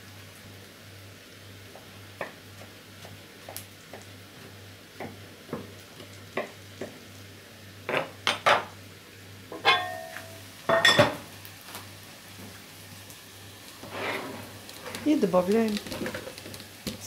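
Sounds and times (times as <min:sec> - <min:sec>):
glass pot lid ringing: 0:09.6 - 0:11.0.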